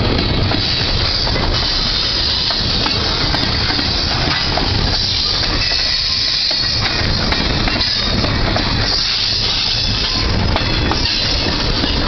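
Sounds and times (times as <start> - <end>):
train cars clanking and rattling: 0.0 - 12.0
train wheels rumbling on rail: 0.0 - 12.0.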